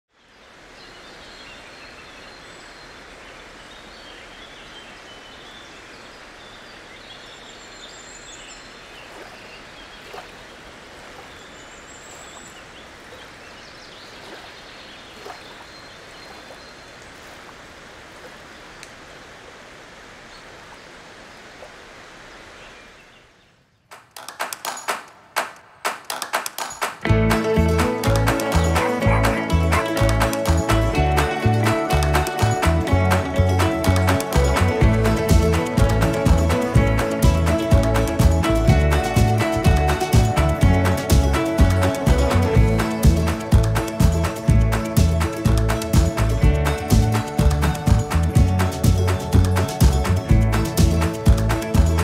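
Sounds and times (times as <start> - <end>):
outdoor hiss: 16.8 - 23.8
music with crisp struck notes: 27.0 - 52.0.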